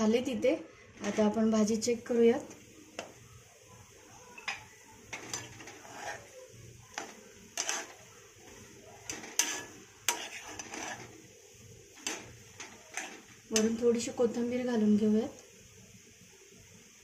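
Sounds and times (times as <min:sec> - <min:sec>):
utensil scraping a pan: 0:01.0 - 0:01.5, 0:04.5 - 0:13.8.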